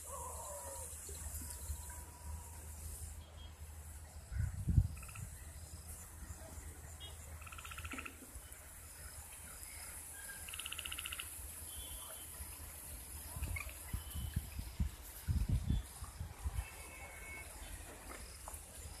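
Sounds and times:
high insect hiss: 0.0s - 19.0s
frogs croaking: 4.2s - 5.8s, 7.0s - 12.3s, 13.3s - 14.0s.

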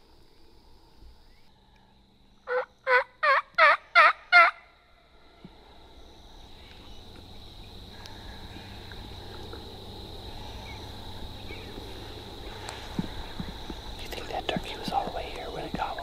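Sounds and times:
turkey yelps: 2.5s - 4.6s.

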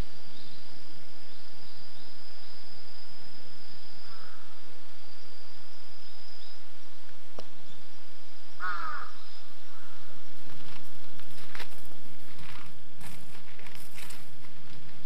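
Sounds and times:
crow cawing: 4.0s - 4.6s, 8.6s - 10.2s.

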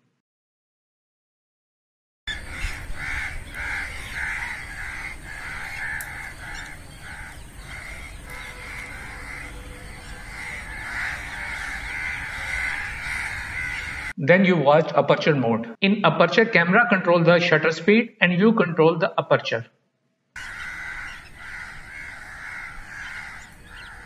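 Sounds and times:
crows cawing: 2.3s - 14.2s, 20.4s - 24.0s.

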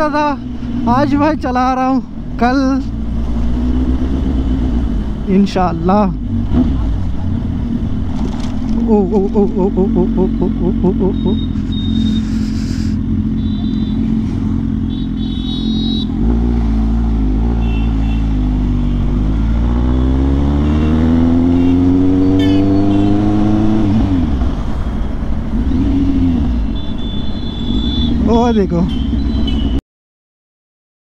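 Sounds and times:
motorcycle engine accelerating: 6.2s - 29.8s.

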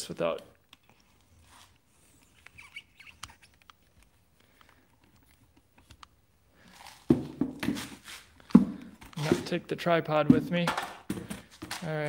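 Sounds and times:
faint handling clicks and rustles: 3.2s - 7.1s.

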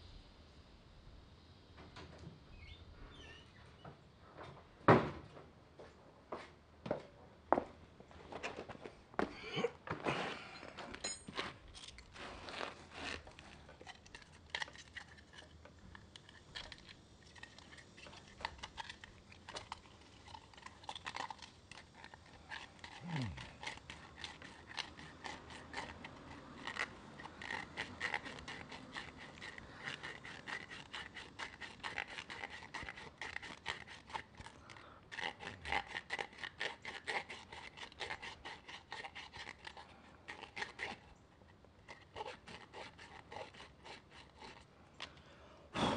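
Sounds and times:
tool scraping plastic pipe cap: 21.0s - 41.0s, 41.8s - 44.6s.

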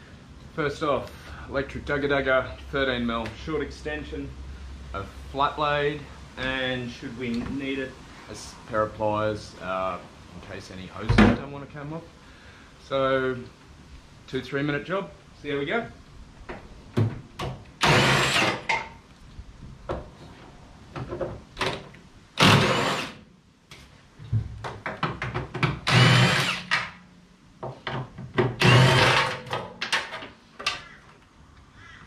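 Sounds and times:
impact wrench bursts: 17.8s - 18.8s, 22.4s - 23.2s, 25.8s - 27.0s, 28.6s - 29.5s
clicks and knocks of handling tools: 27.7s - 31.3s.

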